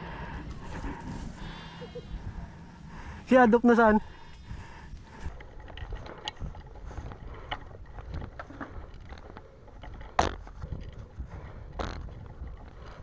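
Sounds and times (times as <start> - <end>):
rifle and gear clicking and rattling: 3.7 - 13.0.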